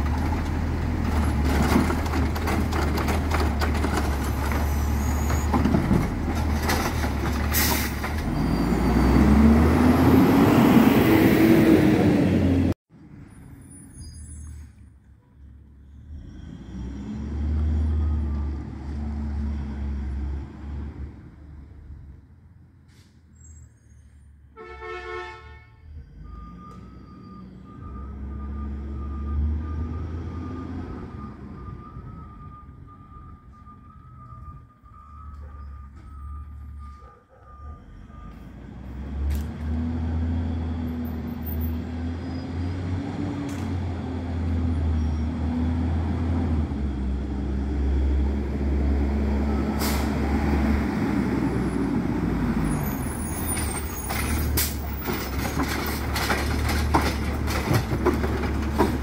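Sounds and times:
garbage truck engine revving: 0.0s - 12.8s
horn toot: 24.6s - 26.0s.

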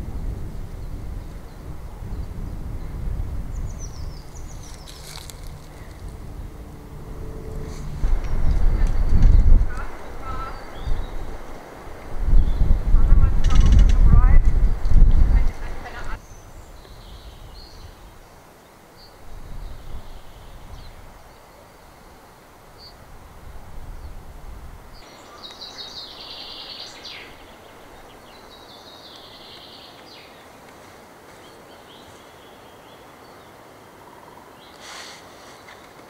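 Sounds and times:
wind rumble on microphone: 0.0s - 18.3s, 19.2s - 21.4s, 22.0s - 29.5s
small birds chirping: 0.2s - 6.3s, 8.3s - 11.7s, 12.3s - 22.2s, 24.9s - 36.0s
steady hiss: 14.6s - 36.0s.

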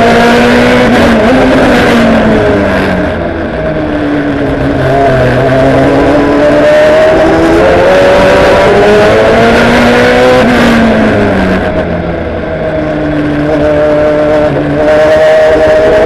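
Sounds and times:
race car engine revving: 0.0s - 16.0s.

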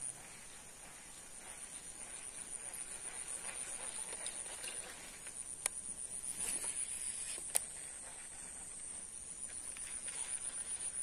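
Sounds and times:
high-pitched insect drone: 1.4s - 11.0s.

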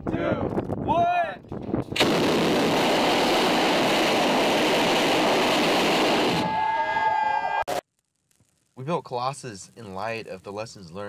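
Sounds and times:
rocket engine firing: 1.9s - 6.6s.

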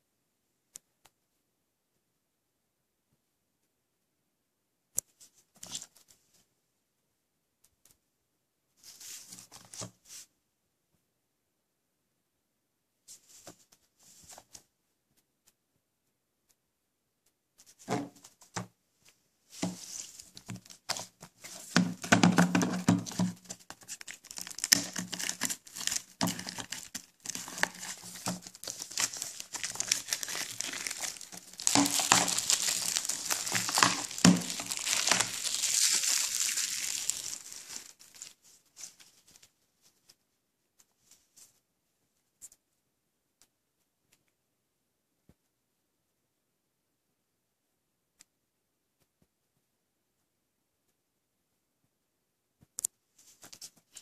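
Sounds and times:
plastic wrap tearing and crinkling: 19.8s - 38.4s.

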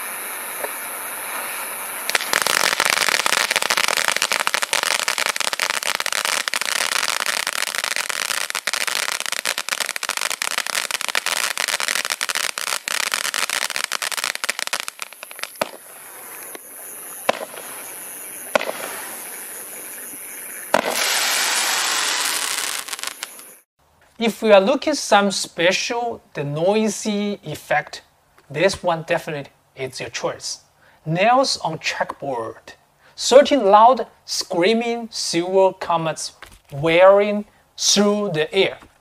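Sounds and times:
loud hissing rush: 0.0s - 5.7s, 14.9s - 23.6s
fireworks crackling: 0.0s - 23.7s
sharp firework reports: 17.3s - 20.0s, 20.7s - 23.6s.

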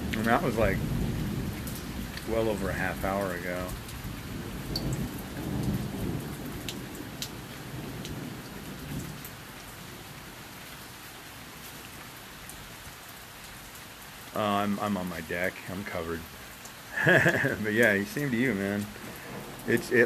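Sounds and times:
thunder rumbling: 0.0s - 9.3s, 17.0s - 20.0s
raindrop ticks close by: 0.0s - 9.9s, 11.6s - 20.0s
heavy rain: 0.0s - 20.0s.

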